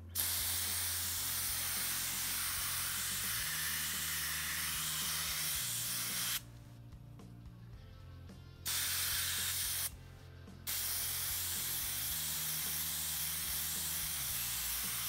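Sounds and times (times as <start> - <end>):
airbrush hissing: 0.0 - 6.5, 8.7 - 10.0, 10.7 - 15.0.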